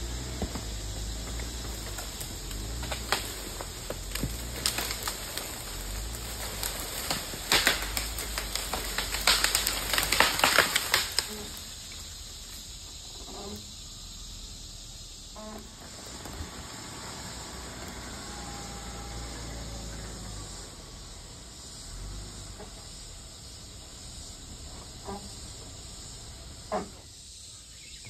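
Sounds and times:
wood cracking and snapping: 0.0 - 12.1
low steady rumble: 0.0 - 27.0.

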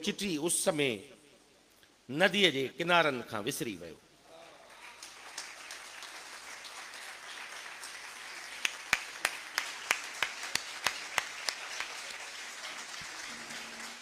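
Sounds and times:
audience applauding: 4.6 - 14.0
sharp claps close by: 5.0 - 14.0.

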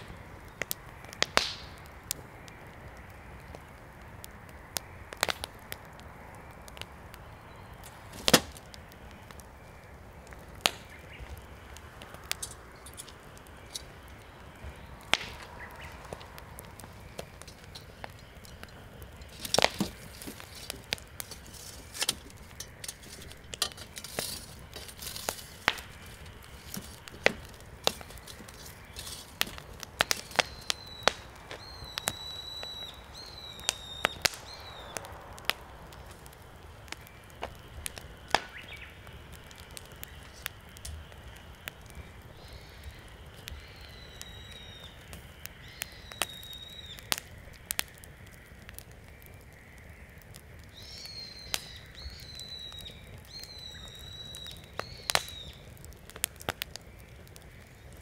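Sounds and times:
fire crackling and popping: 0.0 - 58.0
bird whistling: 30.2 - 35.0, 43.6 - 45.0, 45.6 - 47.1, 50.7 - 55.6.

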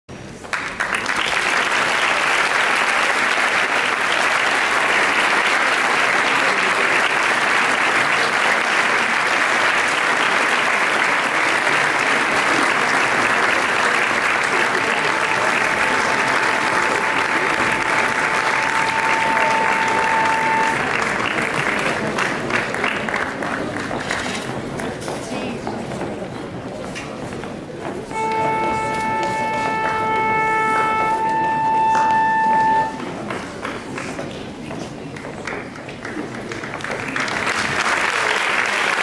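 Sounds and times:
audience applauding: 0.4 - 24.9, 28.1 - 39.0
steady high tone: 14.0 - 21.1, 28.1 - 33.2.

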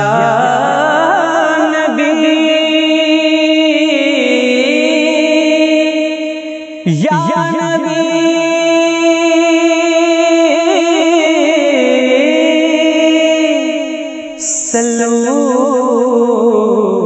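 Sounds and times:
wordless chant-like singing: 0.0 - 17.0.

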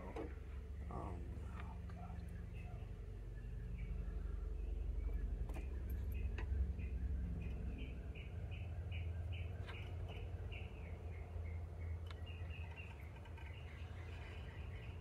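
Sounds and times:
bird chirping: 2.0 - 15.0.

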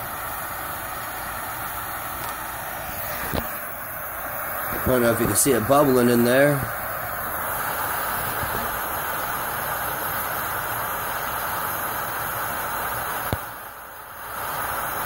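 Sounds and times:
gas burners rushing hiss: 0.0 - 15.0.

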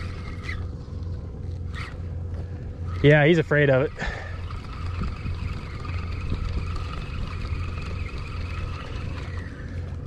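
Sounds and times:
boat motor humming: 0.0 - 10.0.

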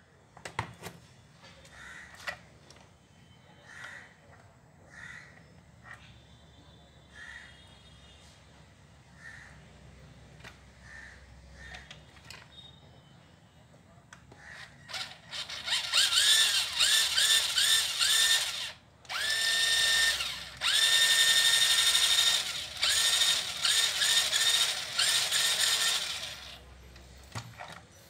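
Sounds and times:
electric motor and gears whining: 14.9 - 26.8.

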